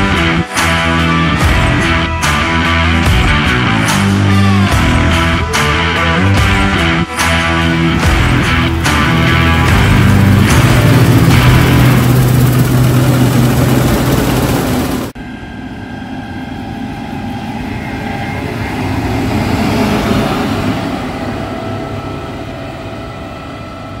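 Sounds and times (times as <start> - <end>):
combine harvester running: 7.2 - 24.0
combine harvester driving past: 7.7 - 24.0.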